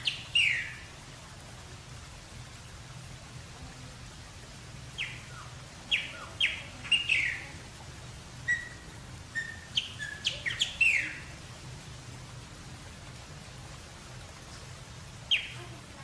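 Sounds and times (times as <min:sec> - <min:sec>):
blackbird singing whistles: 0:00.1 - 0:00.8, 0:09.4 - 0:11.2.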